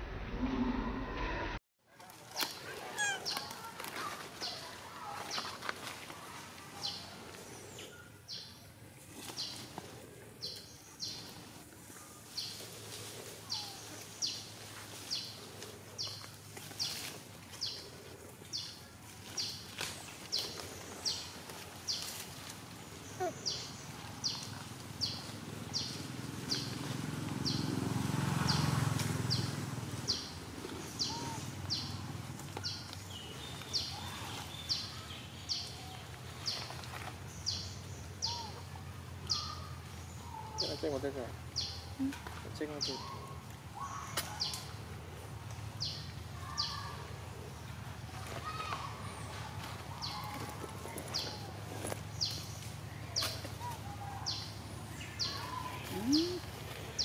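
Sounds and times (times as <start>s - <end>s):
low rumble: 0.0s - 1.6s.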